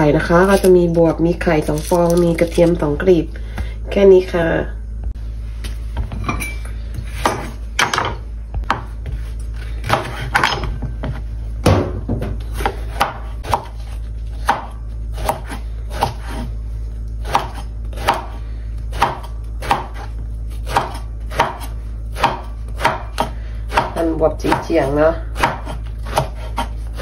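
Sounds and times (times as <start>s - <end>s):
steady low hum: 0.0s - 27.0s
knife chopping on wooden board: 7.0s - 10.6s, 11.7s - 16.5s, 17.2s - 27.0s.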